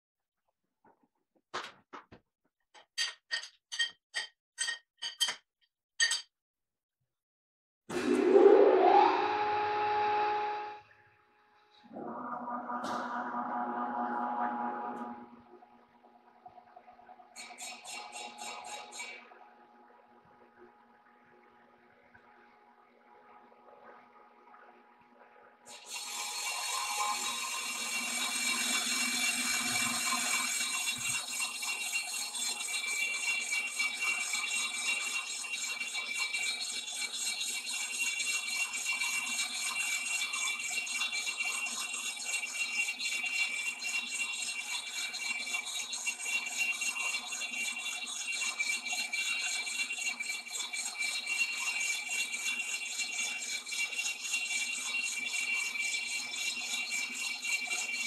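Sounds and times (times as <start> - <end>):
lathe whine and hum: 7.9 - 10.9, 11.8 - 16.0, 25.8 - 31.7.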